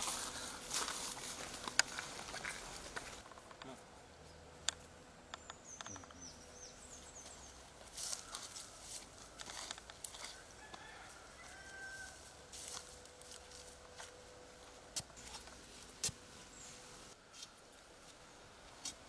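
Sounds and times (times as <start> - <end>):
feet scuffing on dry ground: 0.0 - 3.2, 7.8 - 16.5
birds calling: 5.1 - 9.6.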